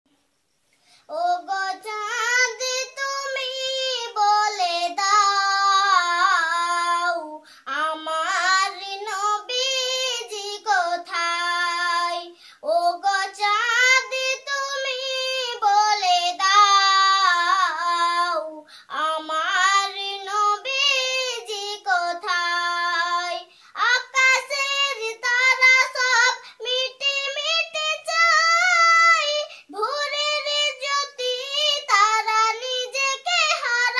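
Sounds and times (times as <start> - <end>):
girl singing unaccompanied: 0.9 - 33.9.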